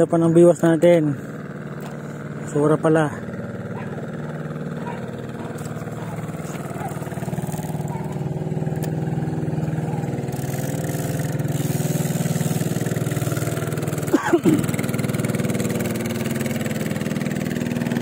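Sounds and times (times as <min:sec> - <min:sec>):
small boat engine running: 0:00.0 - 0:18.0.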